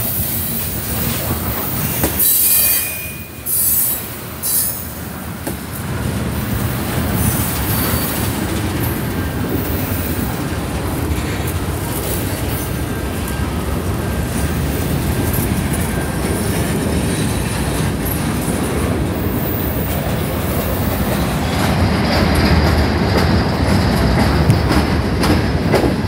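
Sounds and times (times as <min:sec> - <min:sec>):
train wheels rumbling on rail: 0:00.0 - 0:26.0
high-pitched wheel squeals: 0:01.8 - 0:04.9.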